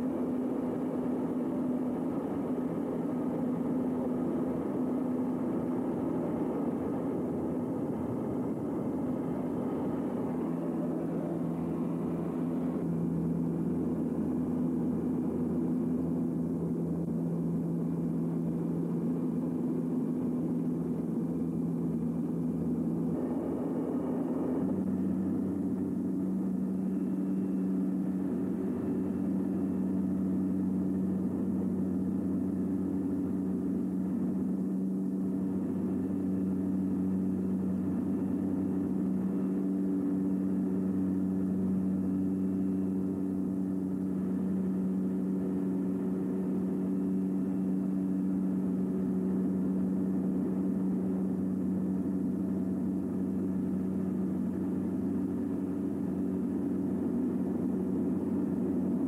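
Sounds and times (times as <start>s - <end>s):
turboprop cabin drone: 0.0s - 59.0s.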